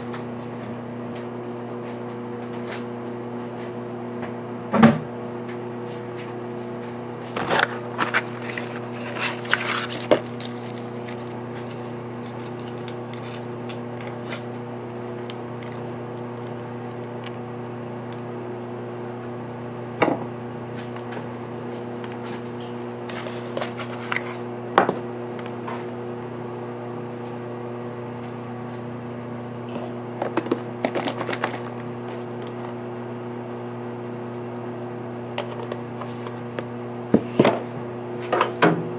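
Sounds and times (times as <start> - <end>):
appliance electrical hum: 0.0 - 38.9
cardboard box being opened: 7.4 - 15.9.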